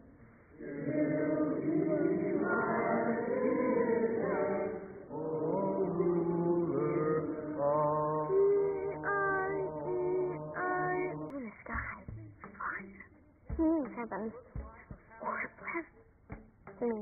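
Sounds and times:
congregation singing a hymn: 0:00.5 - 0:11.3.

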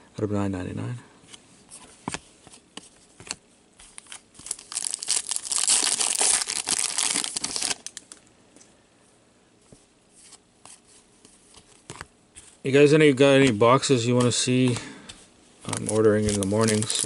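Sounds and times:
foil wrapper crinkling: 0:03.9 - 0:08.2, 0:15.6 - 0:17.0.

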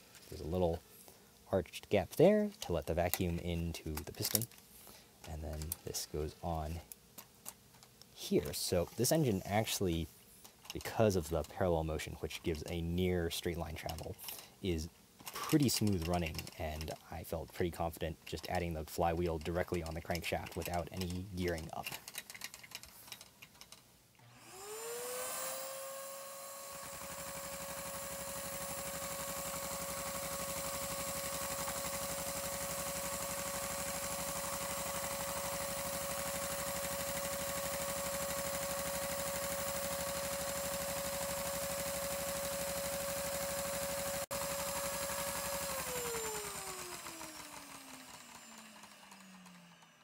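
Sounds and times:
toy engine fast clatter: 0:19.4 - 0:23.7, 0:26.9 - 0:50.0
vacuum cleaner motor whine: 0:24.2 - 0:50.0.

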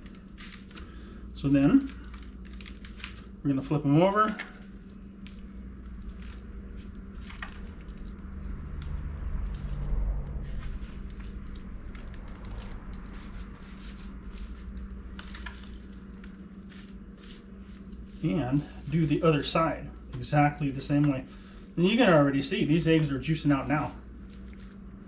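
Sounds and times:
wet squishing and slapping: 0:00.0 - 0:21.8, 0:24.0 - 0:25.0.

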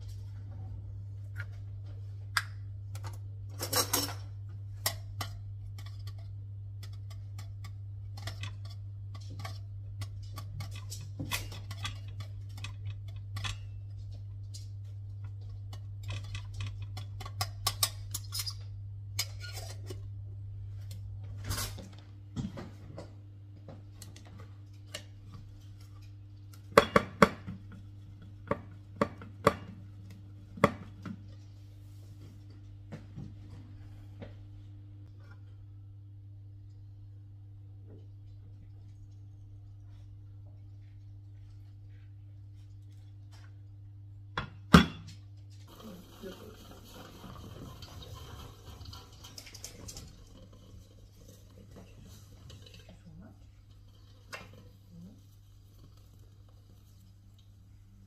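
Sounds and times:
steady low hum: 0:00.0 - 0:58.0
dishes and cutlery clinking: 0:03.6 - 0:06.2.

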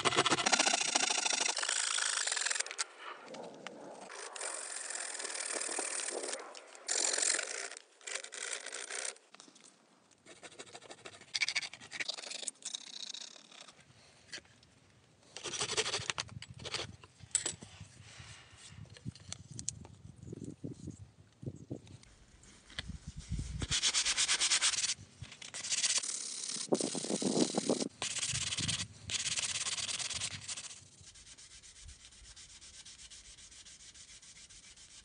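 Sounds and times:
hand saw cutting wood: 0:00.0 - 0:02.8, 0:04.1 - 0:09.1.

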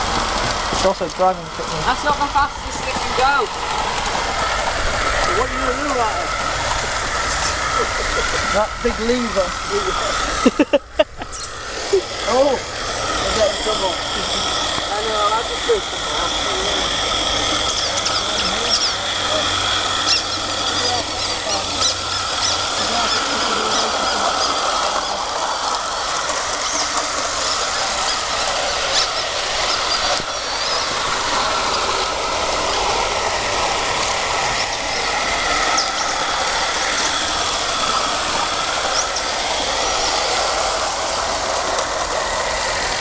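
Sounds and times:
small steam locomotive hissing: 0:00.0 - 0:43.0.

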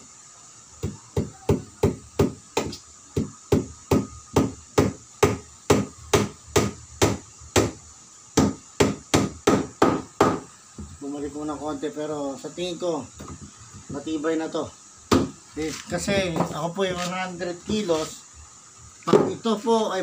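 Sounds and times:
hammer striking wood: 0:00.8 - 0:07.8, 0:08.4 - 0:10.9, 0:15.1 - 0:15.4, 0:19.1 - 0:19.4.

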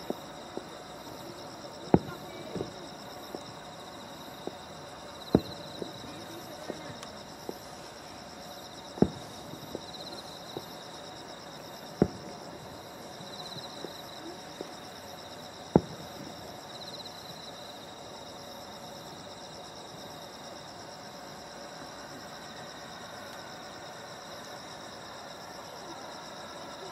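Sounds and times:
firework pops: 0:00.0 - 0:00.8, 0:01.8 - 0:03.6, 0:04.3 - 0:07.7, 0:08.9 - 0:10.8, 0:12.0 - 0:14.8, 0:15.7 - 0:16.5
insects trilling: 0:00.0 - 0:26.9
distant firework booms: 0:01.9 - 0:03.6, 0:05.2 - 0:07.6, 0:08.9 - 0:10.8, 0:12.0 - 0:14.0, 0:15.7 - 0:16.6.

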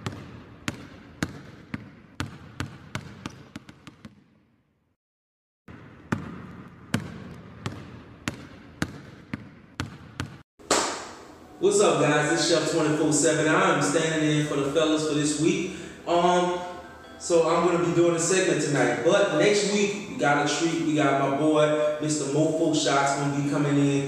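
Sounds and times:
basketball bouncing on wood floor: 0:00.0 - 0:04.4, 0:05.7 - 0:10.4.

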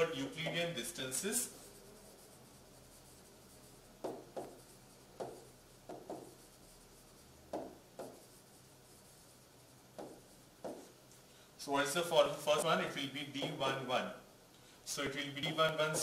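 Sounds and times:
stylus scratching on pen tablet: 0:00.0 - 0:11.0.

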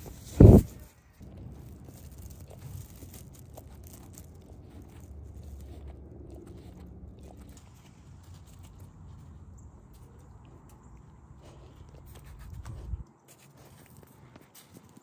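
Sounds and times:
fur brushing over microphone: 0:00.0 - 0:01.0
low rumbling: 0:00.0 - 0:13.1
small clicks and crunches: 0:00.0 - 0:15.0.

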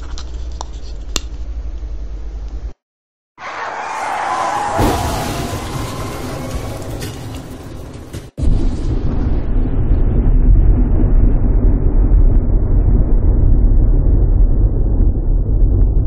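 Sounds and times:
loud deep rumbling: 0:04.7 - 0:16.0.

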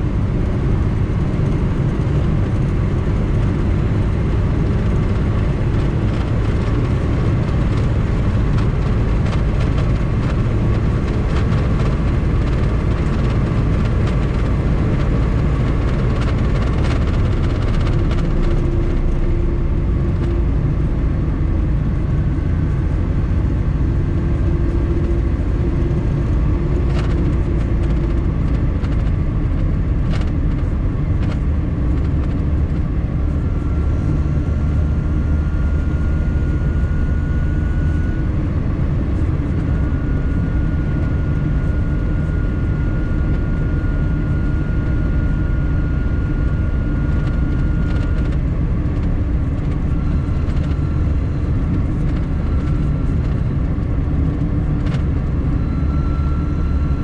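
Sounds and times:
car engine and road drone: 0:00.0 - 0:57.0
faint high whine: 0:30.6 - 0:57.0.

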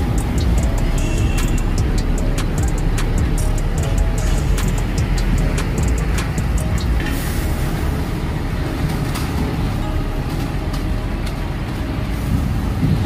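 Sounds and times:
traffic crossing a steel bridge: 0:00.0 - 0:13.0.

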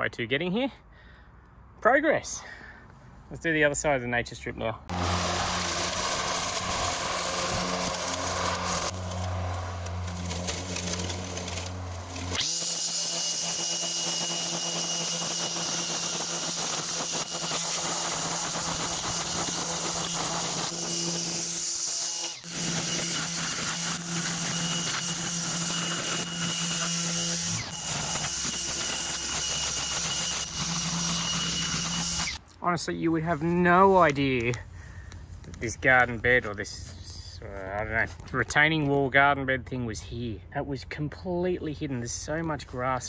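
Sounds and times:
robot mower motor humming: 0:04.9 - 0:32.4.

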